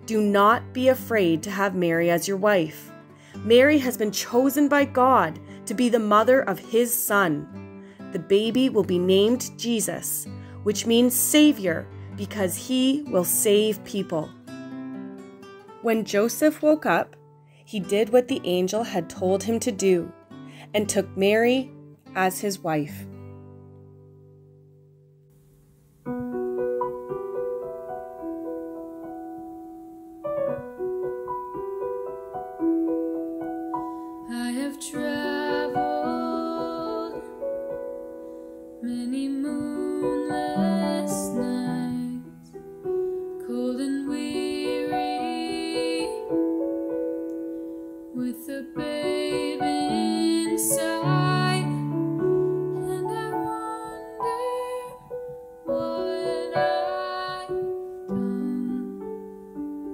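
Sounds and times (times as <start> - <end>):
digital piano playing: 26.1 - 42.9
women singing together: 34.3 - 37.3, 38.8 - 42.2, 48.2 - 51.8, 52.8 - 55.1, 55.7 - 58.9.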